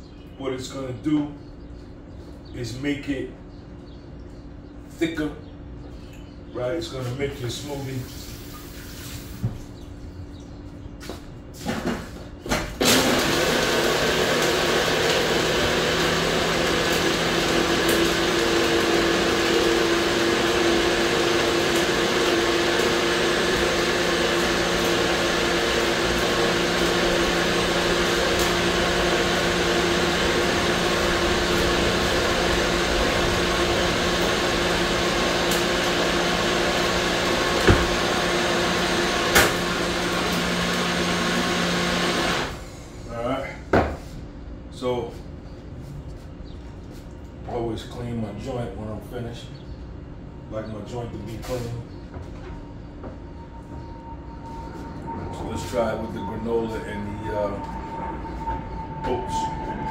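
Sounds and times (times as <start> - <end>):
blender motor running: 12.8 - 42.8.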